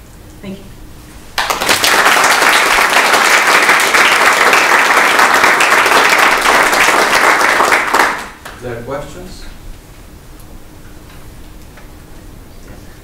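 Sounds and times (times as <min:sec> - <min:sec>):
audience applauding: 0:01.4 - 0:08.5.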